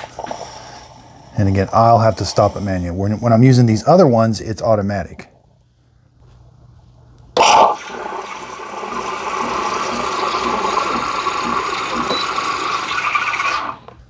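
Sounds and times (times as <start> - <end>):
espresso machine frothing milk: 7.4 - 13.9.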